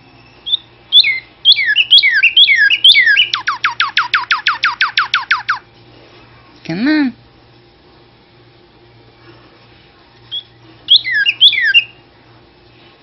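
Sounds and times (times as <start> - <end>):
bird singing whistles: 0.4 - 5.6, 10.3 - 12.0.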